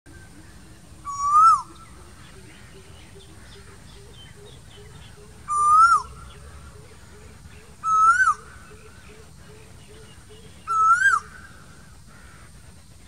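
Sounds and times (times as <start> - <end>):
faint bird chirps: 0.1 - 12.7
koel whistling call: 1.0 - 1.8, 4.4 - 6.2, 7.8 - 9.2, 9.9 - 11.6.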